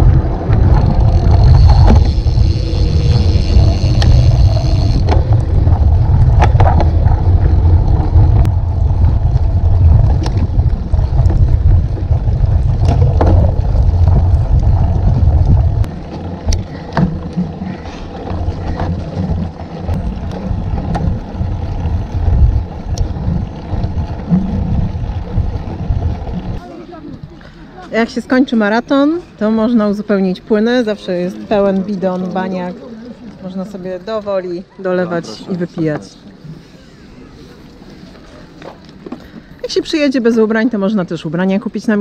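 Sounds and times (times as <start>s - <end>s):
bike knocks and rattles: 0.0s - 26.6s
wind rumble on microphone: 0.0s - 27.4s.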